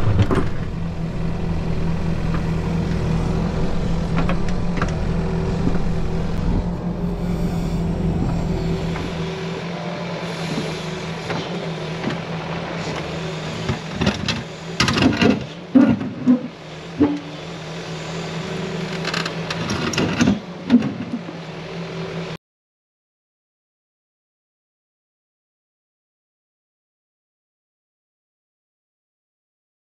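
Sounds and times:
excavator diesel engine running: 0.0s - 22.4s.

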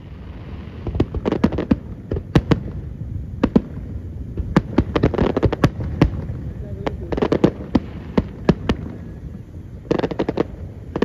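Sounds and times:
fireworks bursting with sharp bangs: 0.0s - 11.0s
steady low rumble: 0.0s - 11.0s.

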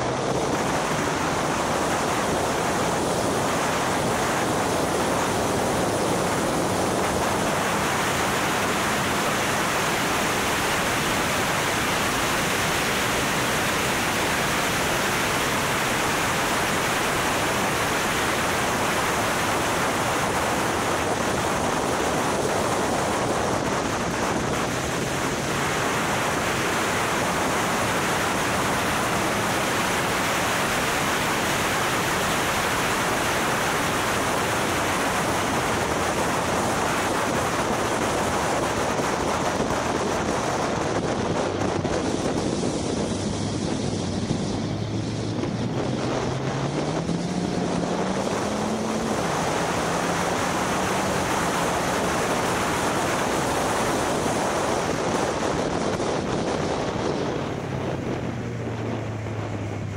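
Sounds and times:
wind rushing over microphone: 0.0s - 59.9s
faint car engine: 56.3s - 59.9s.

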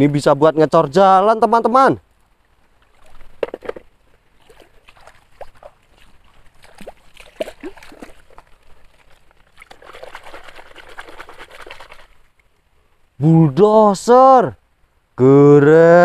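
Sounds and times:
stream water splashing: 2.4s - 12.5s
dripping plops: 4.4s - 11.2s.

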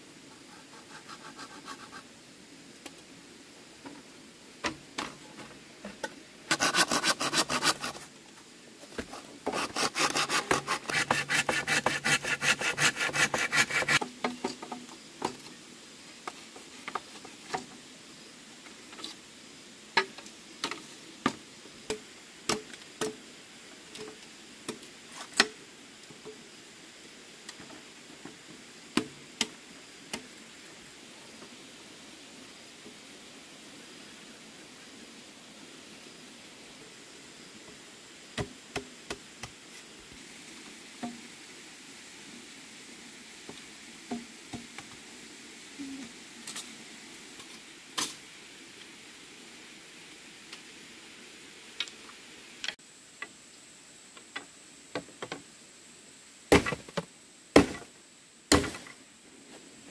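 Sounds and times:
scraping strokes on wood: 0.3s - 2.1s, 6.5s - 8.1s, 9.0s - 14.4s.

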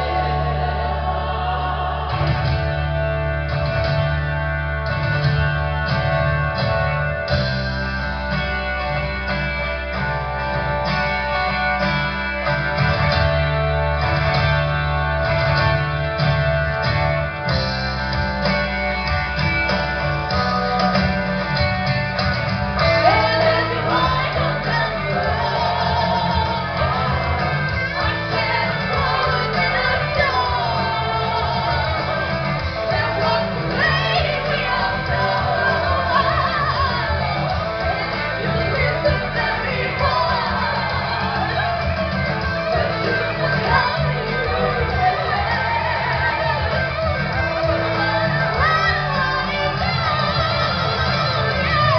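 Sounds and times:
rock music with guitar: 0.0s - 51.9s
person singing: 22.8s - 51.9s.

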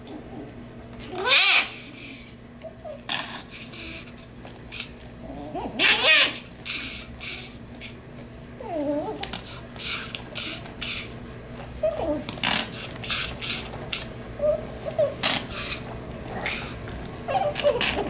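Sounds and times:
dog yelping: 1.0s - 3.1s, 4.8s - 8.0s, 11.8s - 18.0s.

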